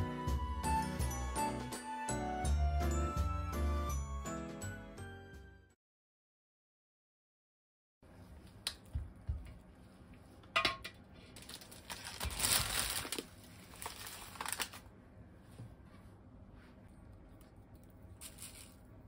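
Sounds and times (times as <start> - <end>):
plastic packaging crinkling: 11.4 - 14.9, 17.8 - 19.0.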